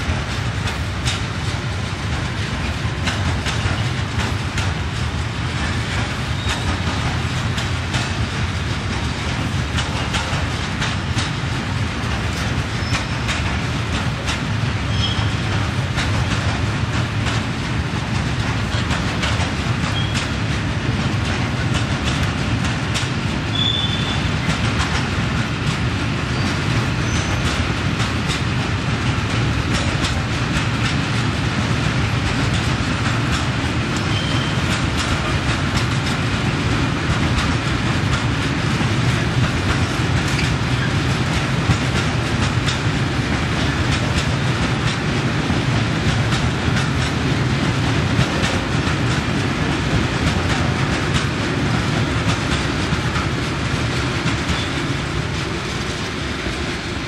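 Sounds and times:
freight train rolling: 0.0 - 57.0
wheels clicking over rail joints: 0.1 - 56.8
high wheel squeals: 14.9 - 15.4, 23.5 - 24.3, 34.0 - 34.6.

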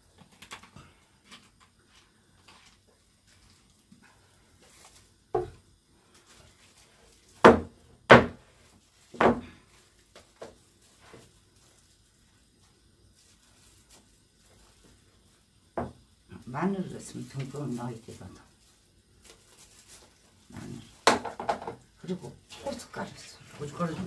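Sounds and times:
knocks and thuds on table: 5.3 - 5.6, 7.4 - 8.4, 9.2 - 9.5, 15.8 - 16.0, 21.0 - 21.8.

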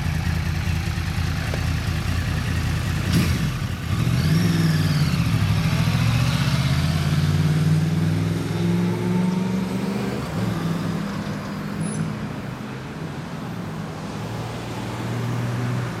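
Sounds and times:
motorcycle engine accelerating: 0.0 - 10.8.

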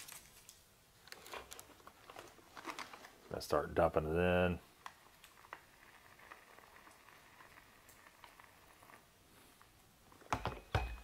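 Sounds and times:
food crackling in water: 0.0 - 3.9, 4.6 - 10.4
pouring boiling water: 1.9 - 10.2.

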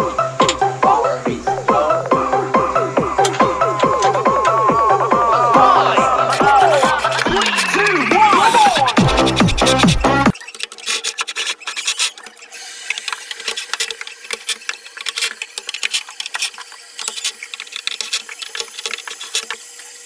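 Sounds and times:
music: 0.0 - 10.4
cordless drill scraping metal: 2.8 - 5.0, 6.1 - 19.8.

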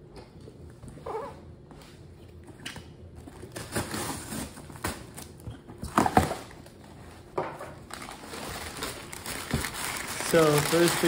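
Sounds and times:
newspaper packing crinkling: 7.8 - 11.0.

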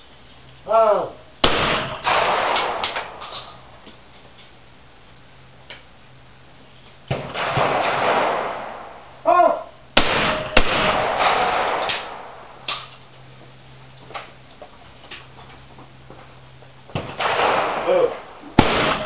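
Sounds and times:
person shouting: 0.7 - 1.2, 9.2 - 9.8
shotgun shots echoing: 1.4 - 3.7, 7.1 - 9.0, 10.0 - 12.9, 17.0 - 19.0.

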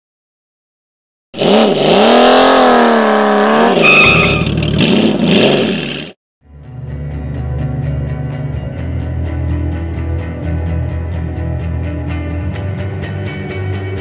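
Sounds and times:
engine revving: 1.4 - 6.2
high squeal: 3.6 - 4.8
music: 6.4 - 14.0.

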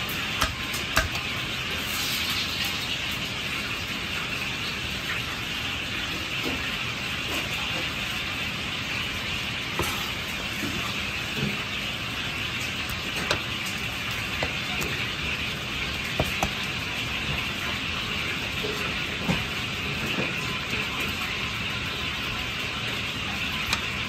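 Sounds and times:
steady rushing kitchen noise: 0.0 - 24.0
blade tapping cutting board: 0.4 - 1.3.

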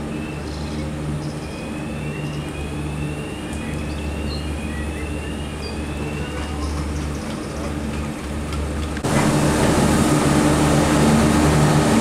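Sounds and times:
low mechanical hum: 0.0 - 12.0
slow rising whines: 9.0 - 12.0.

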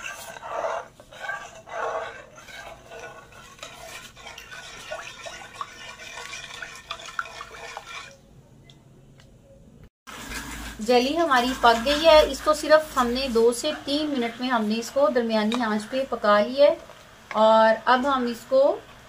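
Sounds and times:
spoon stirring liquid in metal pot: 0.0 - 8.3, 10.3 - 16.1.

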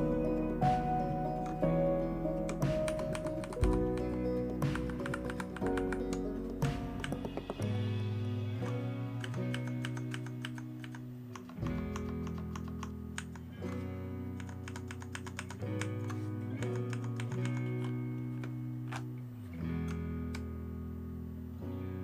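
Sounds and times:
background music with plucked guitar: 0.0 - 22.0
mechanical keyboard clicking: 2.5 - 7.4, 8.6 - 13.5, 14.4 - 19.1.

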